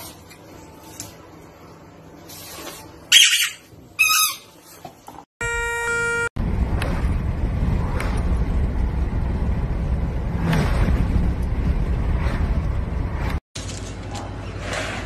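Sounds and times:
wind rushing and road noise: 6.4 - 13.4.

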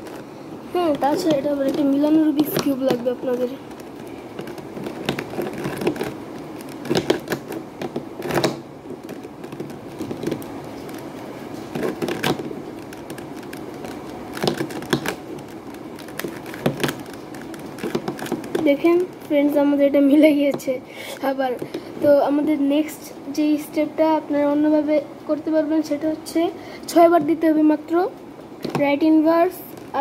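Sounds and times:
puzzle cube layers clicking: 11.8 - 19.2.

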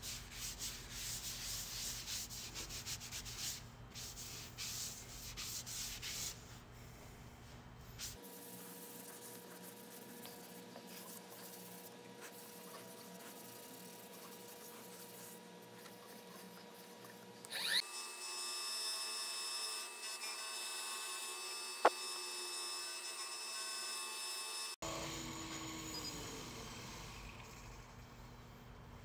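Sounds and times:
power tool humming: 17.4 - 28.2.

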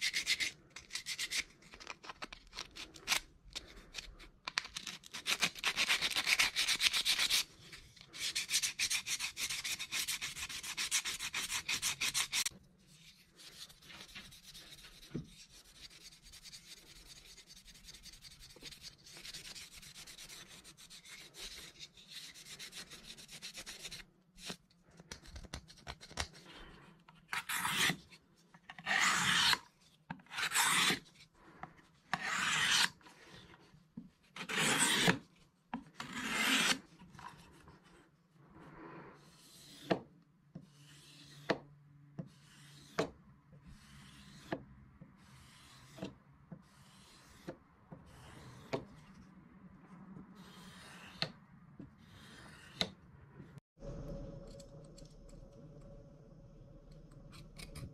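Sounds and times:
blade drawn across sharpener: 27.3 - 28.1, 28.8 - 29.6, 30.3 - 31.2, 32.1 - 33.5, 34.4 - 35.2, 36.0 - 37.3, 45.2 - 47.5, 50.4 - 51.3, 52.0 - 52.9.

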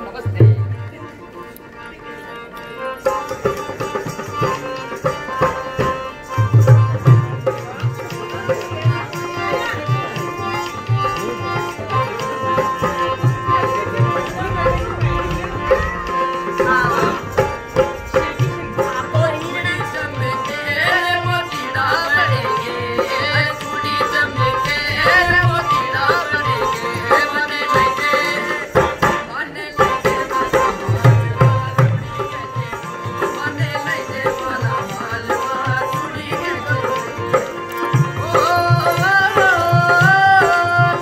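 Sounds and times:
sustained folk melody: 0.0 - 41.0
hand drum beating: 3.4 - 21.4, 29.8 - 41.0
person singing: 4.6 - 41.0.

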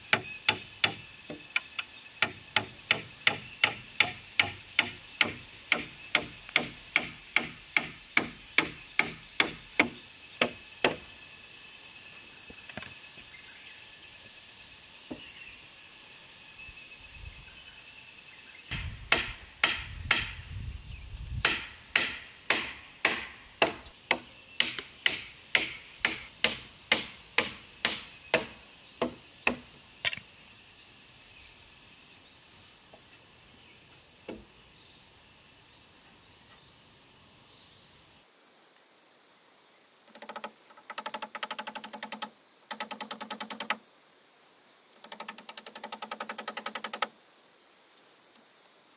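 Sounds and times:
high insect hum: 0.0 - 48.9
hammer blows on nails: 18.7 - 20.4, 21.4 - 29.6.

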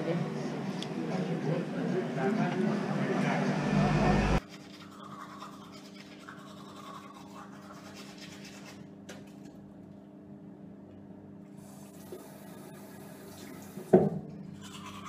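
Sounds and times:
crowded room noise: 0.0 - 4.4
steady low hum: 0.0 - 4.5
toothbrush scrubbing teeth: 4.4 - 9.4, 14.4 - 15.0.

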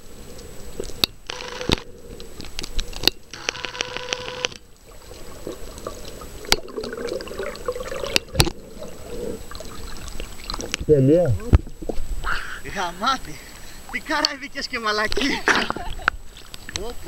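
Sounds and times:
buzz of rapid ticks: 1.0 - 4.6
muffled water rushing underwater: 4.6 - 10.9.

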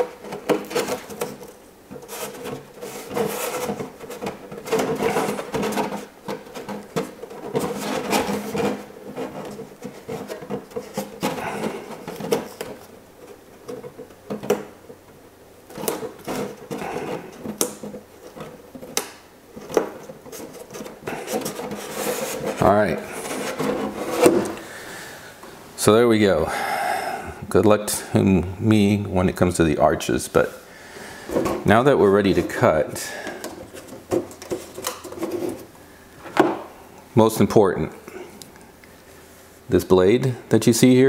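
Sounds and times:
plastic crackling and rustling: 0.0 - 24.7.

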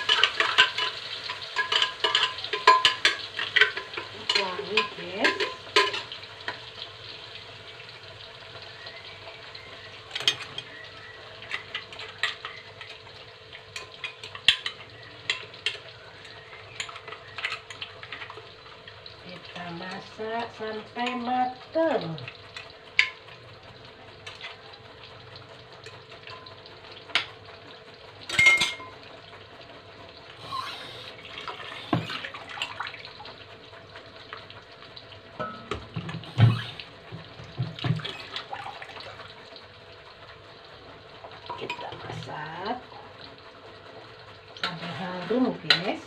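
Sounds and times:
dishes and utensils clinking: 0.0 - 6.2, 10.1 - 10.7, 28.3 - 29.0, 35.4 - 36.7
water running: 0.0 - 46.0.

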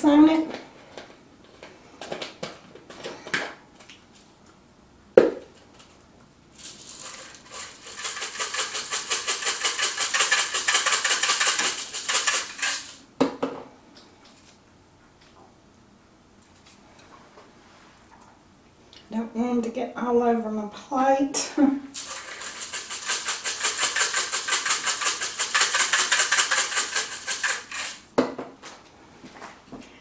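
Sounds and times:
bacon bits rattling in container: 6.5 - 13.0, 21.9 - 28.1.

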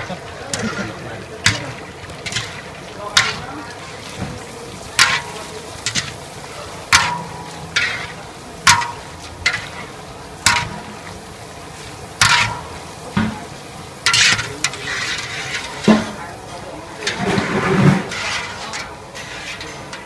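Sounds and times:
oil sizzling in a wok: 0.0 - 20.0
skimmer scraping against wok: 0.0 - 20.0.

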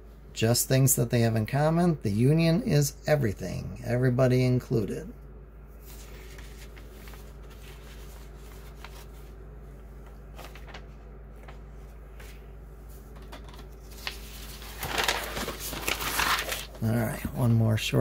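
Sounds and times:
steady low hum: 0.0 - 18.0
paper rustling: 5.8 - 17.2.

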